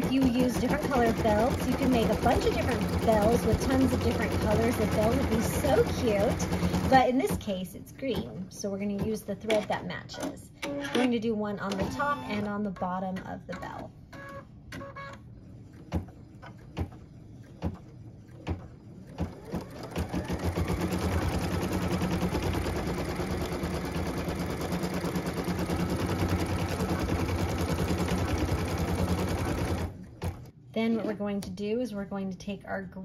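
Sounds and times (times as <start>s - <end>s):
embroidery machine stitching: 0.0s - 7.6s, 13.5s - 30.5s.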